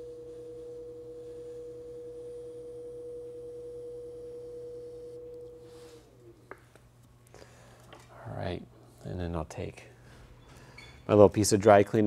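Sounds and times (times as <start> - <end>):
potter's wheel motor whine: 0.0 - 6.6.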